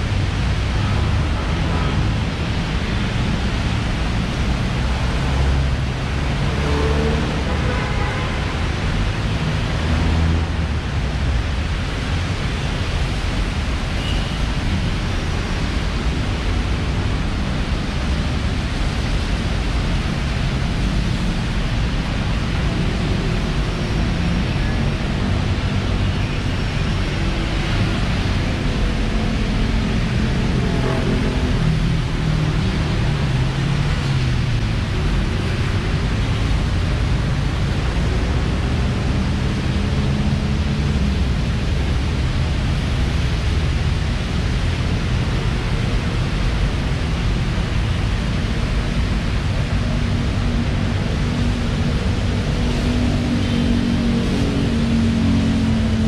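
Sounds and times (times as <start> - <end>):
passing traffic engines: 0.0 - 56.0
rain hiss on wet road: 8.3 - 9.8, 10.4 - 53.0.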